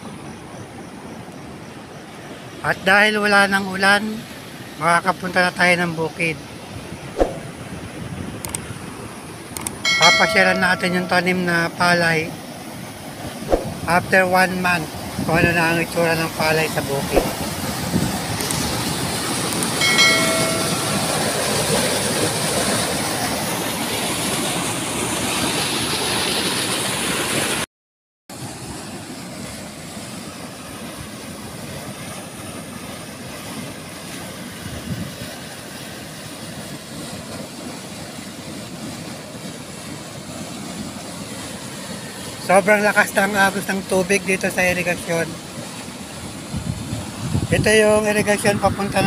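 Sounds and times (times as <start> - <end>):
water rushing through canal: 0.1 - 27.6, 28.4 - 49.0
short chime: 9.9 - 11.7, 19.8 - 21.6.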